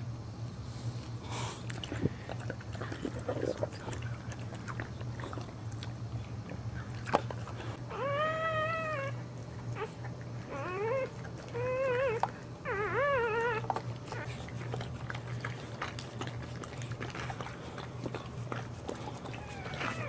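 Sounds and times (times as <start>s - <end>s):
puppy crying: 7.8s - 14.8s, 19.0s - 20.0s.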